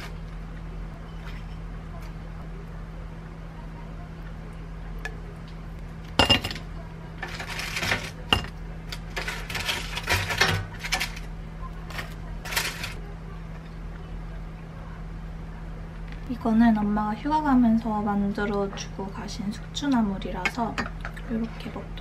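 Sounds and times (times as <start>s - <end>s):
dishes clinking: 6.2s - 8.6s
utensils scraping and rattling: 7.2s - 11.3s, 11.9s - 13.0s.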